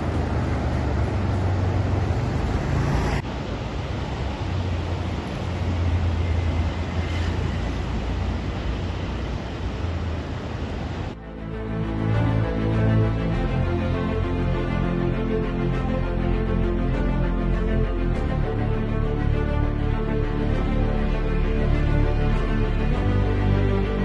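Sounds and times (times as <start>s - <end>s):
sea surf rushing: 0.0s - 11.2s.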